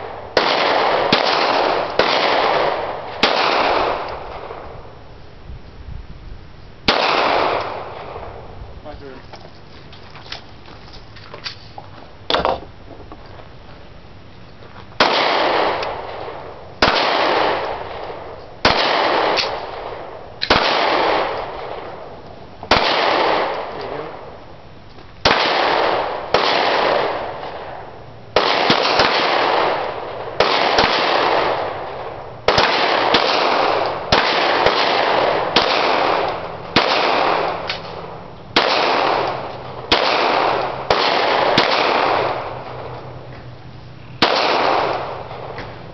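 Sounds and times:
echoing pistol shots: 0.0 - 4.9, 6.9 - 8.6, 15.0 - 24.4, 25.2 - 43.2, 44.2 - 45.8.

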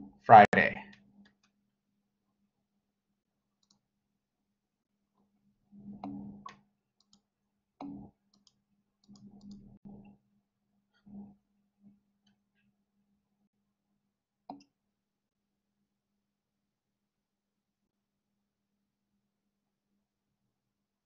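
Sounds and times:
clicks and thumps at a computer: 5.8 - 7.2, 7.8 - 10.2.

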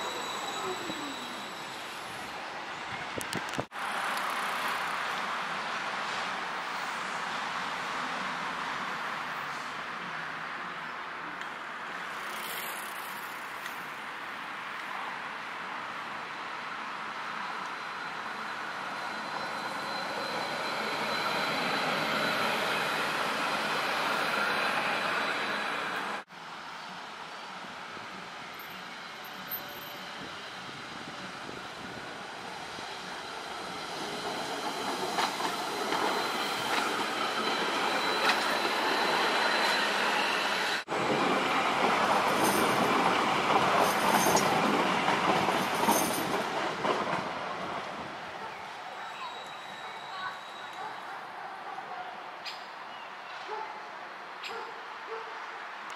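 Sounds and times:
high-pitched wheel squeals: 0.0 - 2.3, 17.5 - 23.1, 36.1 - 40.8, 49.0 - 50.8
tram wheels rumbling on rail: 27.6 - 50.9.

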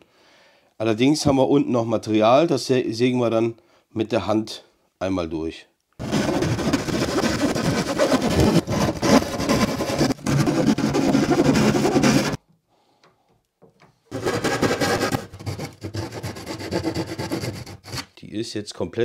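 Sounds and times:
hand saw rasping: 6.0 - 12.4, 14.1 - 18.1.

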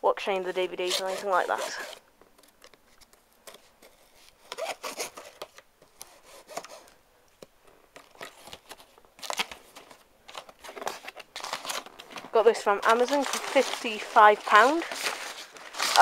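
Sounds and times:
packing tape tearing: 0.8 - 6.9, 8.0 - 16.0
cardboard flaps scraping: 8.3 - 16.0.

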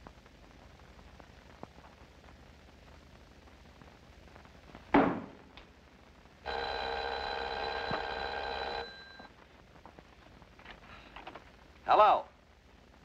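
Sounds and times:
loud thump: 5.0 - 5.4
telephone bell ringing: 6.5 - 9.3.

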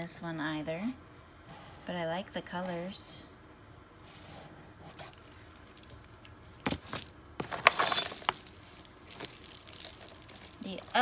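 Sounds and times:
jewelry clinking and jangling: 7.4 - 11.0.

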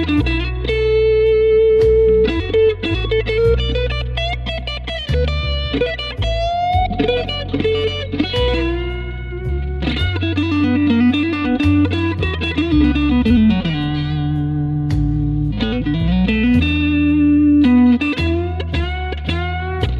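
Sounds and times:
bass line: 0.0 - 19.9
electric blues guitar lead: 0.0 - 19.9
drums: 1.8 - 14.0.

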